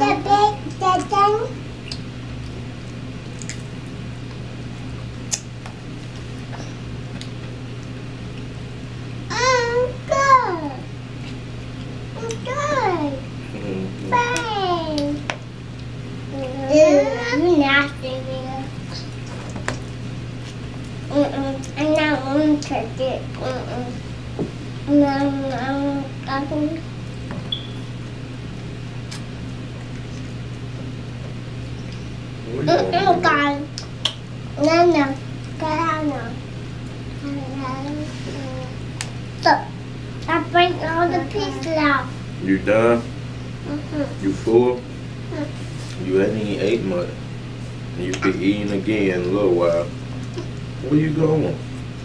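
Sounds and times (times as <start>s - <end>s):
steady low hum: 0.0s - 52.0s
child's high voice: 9.3s - 10.8s
children chewing: 11.2s - 12.6s.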